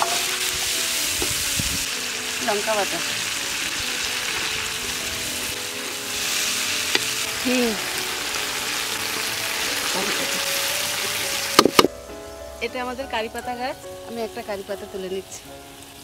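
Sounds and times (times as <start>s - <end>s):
paste sizzling in hot oil: 0.0s - 12.4s
utensil tapping on pan: 11.6s - 11.9s.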